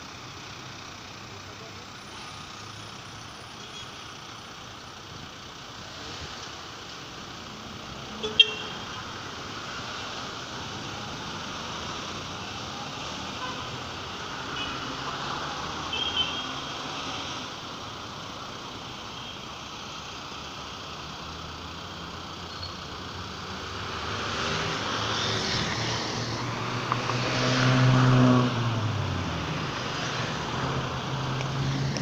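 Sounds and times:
traffic hum: 0.0s - 32.0s
vehicle engine passing: 23.1s - 32.0s.

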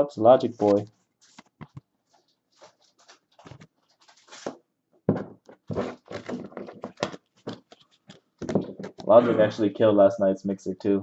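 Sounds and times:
trading cards being handled: 0.4s - 4.6s.

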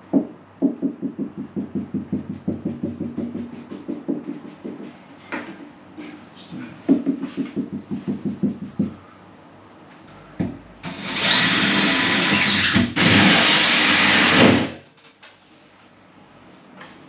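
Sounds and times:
cordless drill hole saw cutting: 10.9s - 14.8s.

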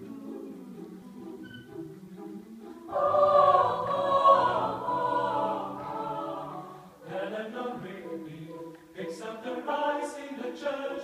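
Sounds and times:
choir singing a cappella: 0.0s - 11.0s.

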